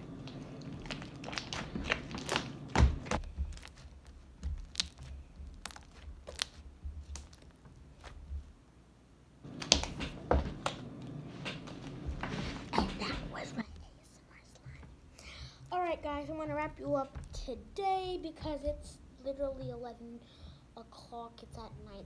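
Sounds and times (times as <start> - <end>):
slime clicking and popping: 0.7 - 7.6.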